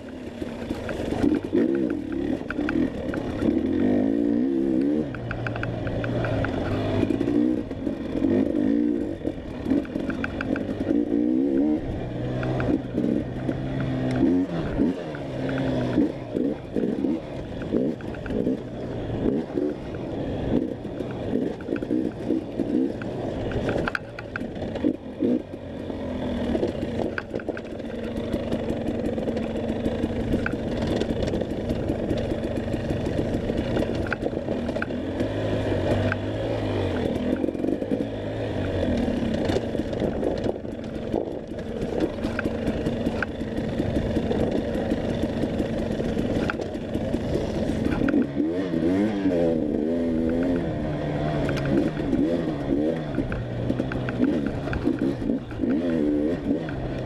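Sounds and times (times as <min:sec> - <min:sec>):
motorcycle engine revving: 0:00.0 - 0:57.0
bike knocks and rattles: 0:26.5 - 0:35.1, 0:37.0 - 0:49.1.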